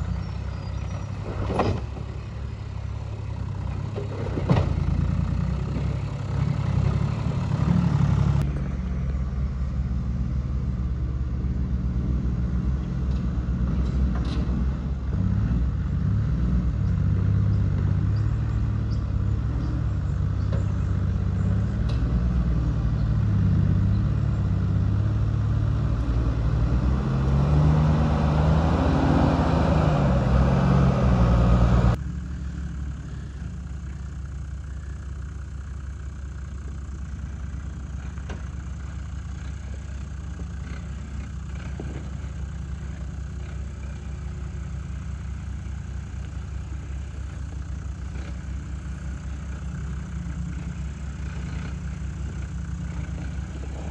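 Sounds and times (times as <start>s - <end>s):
truck engine under load: 0.0s - 53.9s.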